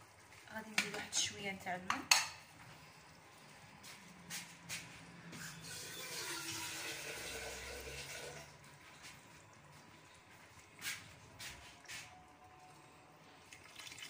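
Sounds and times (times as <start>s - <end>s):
water pouring into pot: 5.7s - 10.2s, 13.3s - 14.0s.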